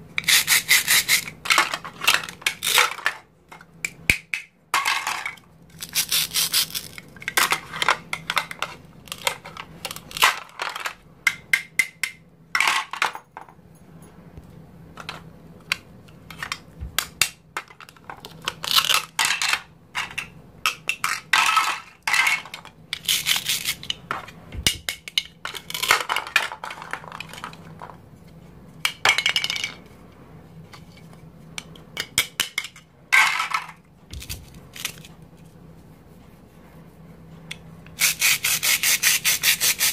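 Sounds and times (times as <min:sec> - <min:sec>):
plastic toys clattering: 0:00.9 - 0:03.7, 0:04.7 - 0:11.4, 0:12.6 - 0:13.4, 0:17.6 - 0:28.0, 0:28.8 - 0:29.9, 0:32.0 - 0:35.1.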